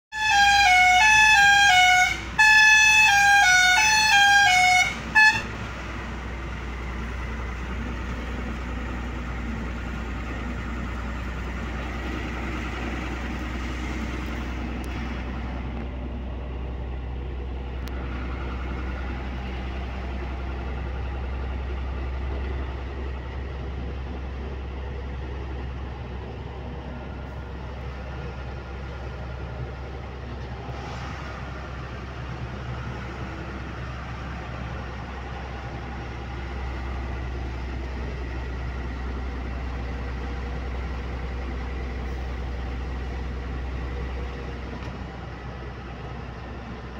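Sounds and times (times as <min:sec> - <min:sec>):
truck musical horn: 0:00.1 - 0:06.0
road noise inside cab: 0:00.1 - 0:46.9
truck engine drone: 0:00.1 - 0:46.9.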